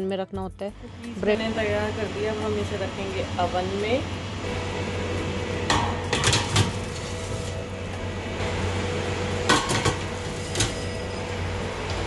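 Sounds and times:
machine hum: 0.7 - 12.0
metal trays scraping and clattering: 5.7 - 7.6, 9.5 - 11.1.

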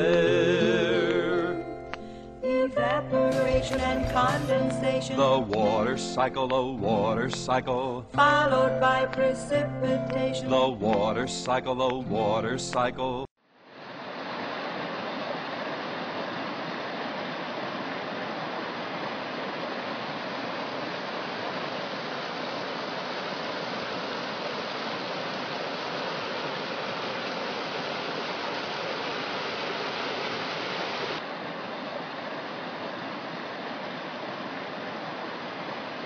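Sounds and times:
rushing water: 13.6 - 36.0.

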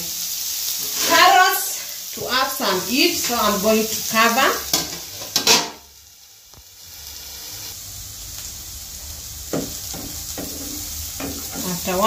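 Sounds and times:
vegetables sizzling in pan: 0.0 - 12.0
spatula scraping pan: 0.8 - 1.4.

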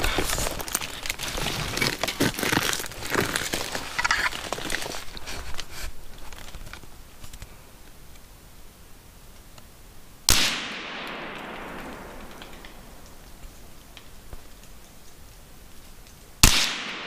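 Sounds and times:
footsteps on dry leaves: 0.0 - 6.5.

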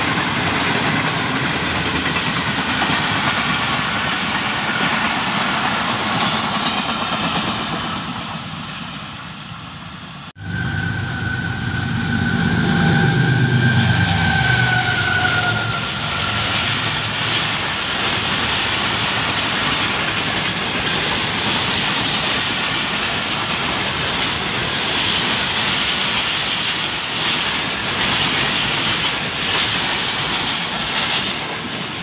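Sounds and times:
train wheels clacking on rails: 0.0 - 9.6, 12.2 - 32.0
train horn two-tone: 10.4 - 16.8.

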